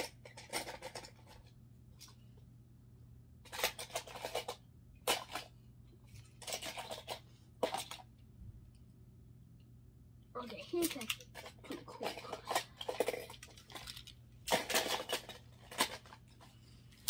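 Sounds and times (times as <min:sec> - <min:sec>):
toy cars clattering together: 0:00.0 - 0:02.2, 0:03.4 - 0:08.1, 0:10.4 - 0:16.5.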